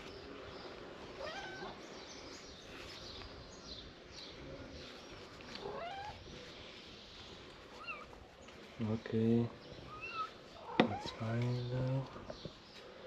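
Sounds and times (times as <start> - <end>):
background noise: 0.0 - 13.0
small birds chirping: 0.0 - 13.0
cat meowing: 1.2 - 1.8, 5.6 - 6.2.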